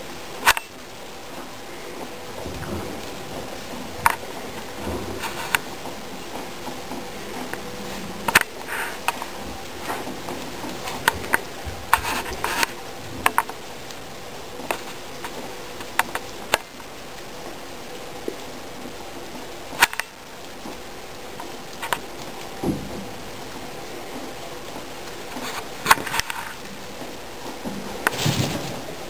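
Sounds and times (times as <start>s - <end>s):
rustling wood shavings: 27.8s - 29.0s.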